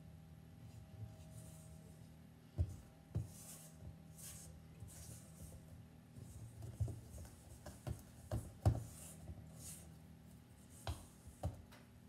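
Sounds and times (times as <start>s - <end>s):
spatula scraping dough in bowl: 3.2s - 5.6s.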